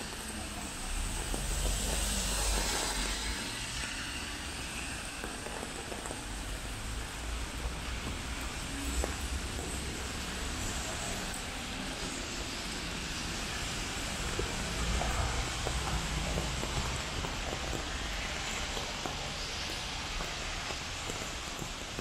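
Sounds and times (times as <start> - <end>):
car tyres on wet road: 0.0 - 22.0
low traffic rumble: 0.0 - 22.0
rain hiss: 0.0 - 22.0.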